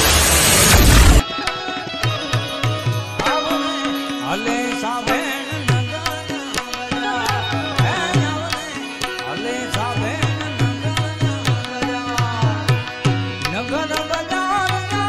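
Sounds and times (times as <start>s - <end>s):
sharp clicking percussion: 0.8s - 15.0s
melodic instrument line: 1.2s - 11.6s.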